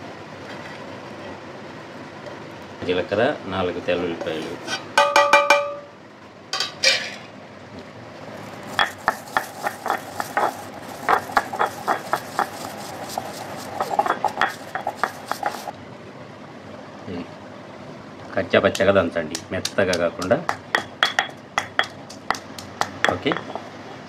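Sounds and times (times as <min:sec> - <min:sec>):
stone pestle pounding in mortar: 0:08.7 - 0:15.7, 0:18.7 - 0:23.7.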